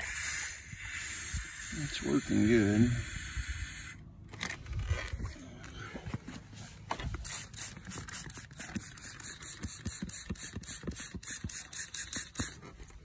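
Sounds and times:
spray bottle squirting: 0:07.0 - 0:12.8.

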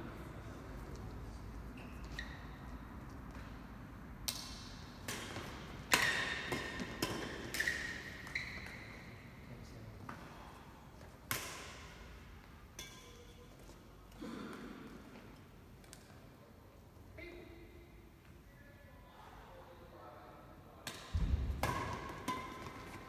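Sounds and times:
shoes squeaking on court floor: 0:01.6 - 0:03.6, 0:05.4 - 0:09.4, 0:21.7 - 0:23.0
rackets striking shuttlecock: 0:04.2 - 0:08.8, 0:11.2 - 0:11.9, 0:20.8 - 0:23.0.

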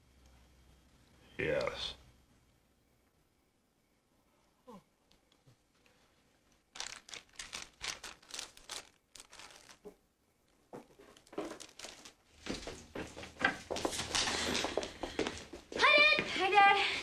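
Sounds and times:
plastic bag crinkling: 0:06.4 - 0:12.8.

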